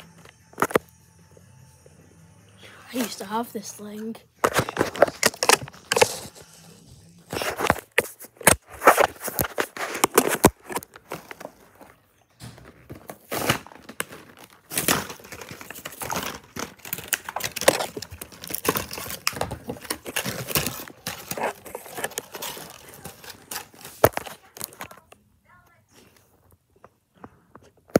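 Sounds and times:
plastic packaging crinkling and tearing: 0.0 - 0.9, 2.9 - 6.6, 7.3 - 12.0, 12.6 - 25.2.

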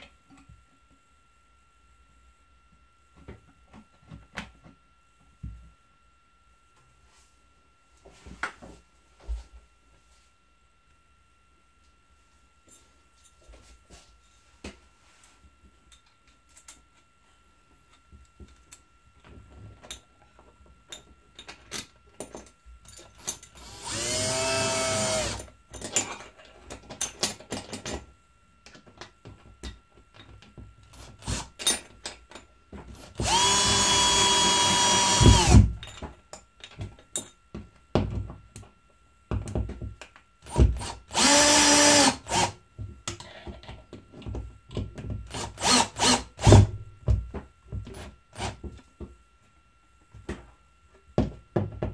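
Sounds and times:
cordless drill driving screws: 23.6 - 25.4, 31.2 - 31.5, 33.0 - 35.7, 40.8 - 42.6, 45.3 - 46.7.

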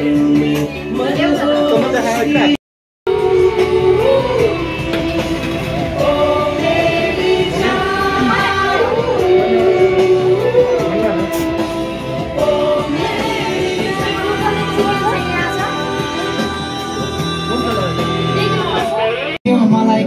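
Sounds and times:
song with singing voice: 0.0 - 20.0.

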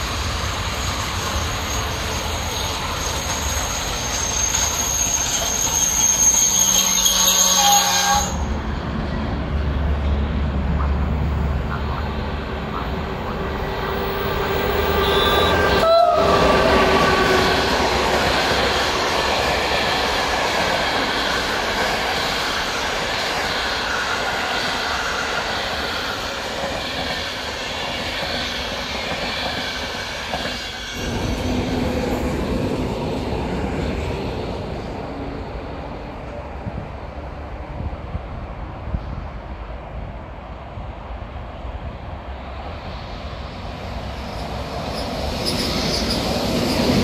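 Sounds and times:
train horn: 6.7 - 8.6, 14.6 - 17.8.

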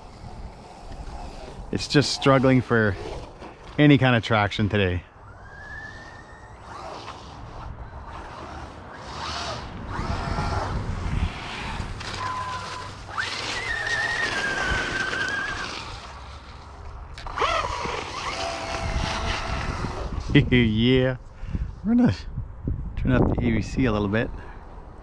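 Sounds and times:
electric motor whining: 0.0 - 3.8, 5.2 - 20.4
wheels spinning in snow: 0.0 - 20.8.

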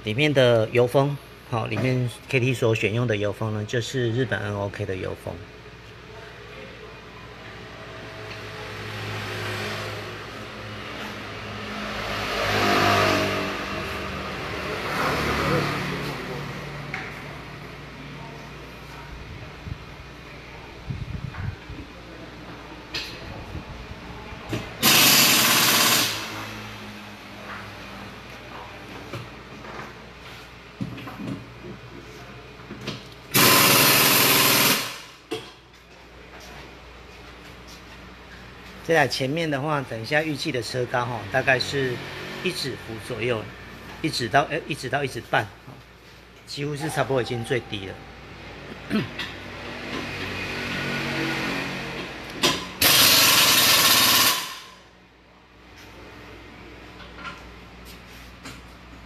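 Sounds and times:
pneumatic impact wrench hammering: 24.8 - 26.5, 33.3 - 35.2, 52.4 - 54.8.

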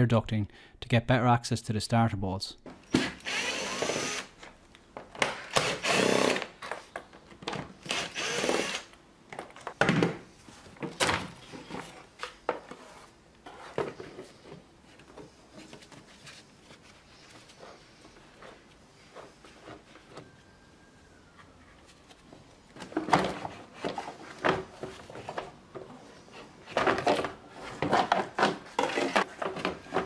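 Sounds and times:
cordless drill whirring: 3.0 - 4.3, 5.5 - 6.5, 7.8 - 8.9.

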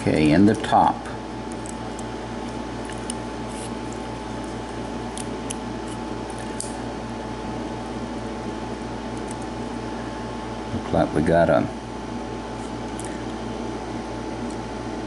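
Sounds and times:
steady background hum: 0.0 - 15.0.

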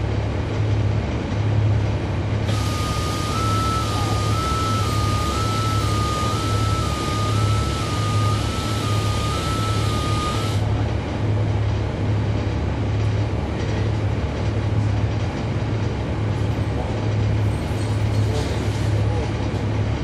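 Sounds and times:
bus diesel engine drone: 0.0 - 20.0
alternating electronic beep: 2.5 - 10.6
bright hiss: 2.5 - 10.6.

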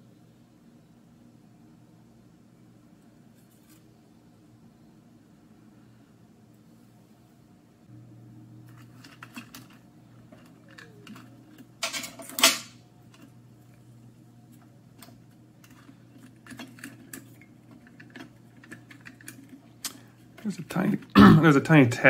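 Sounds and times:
steady low hum: 0.0 - 22.0
plastic parts clicking and rattling: 8.7 - 13.3, 14.6 - 21.1.

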